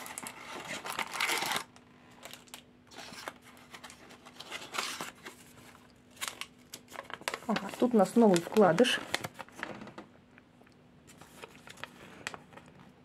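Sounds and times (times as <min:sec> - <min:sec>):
cardboard rustling and tearing: 0:00.0 - 0:09.9.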